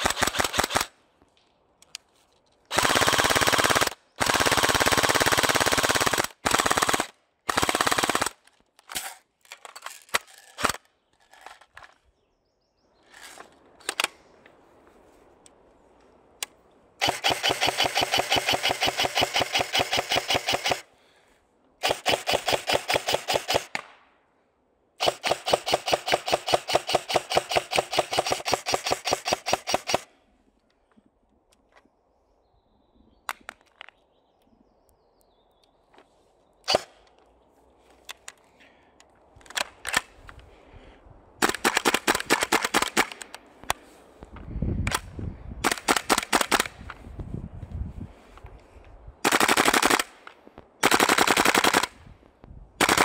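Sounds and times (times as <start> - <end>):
airsoft rifle full-auto bursts: 0.0 - 1.0, 2.7 - 8.5, 17.0 - 20.9, 21.8 - 23.8, 25.0 - 30.1, 41.4 - 43.3, 45.6 - 46.8, 49.2 - 50.2, 50.8 - 51.9, 52.8 - 53.0
sharp clicks: 13.1 - 14.5.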